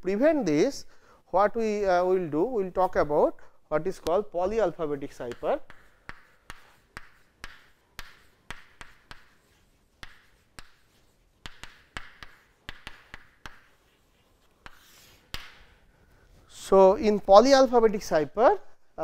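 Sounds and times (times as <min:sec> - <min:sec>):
chalk tapping on chalkboard: 0:04.5 - 0:15.8
chalk scratching on chalkboard: 0:04.6 - 0:15.8.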